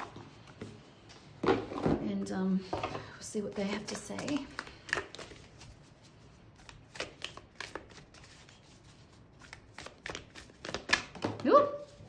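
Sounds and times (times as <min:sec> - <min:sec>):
cards being shuffled: 0:03.5 - 0:12.0.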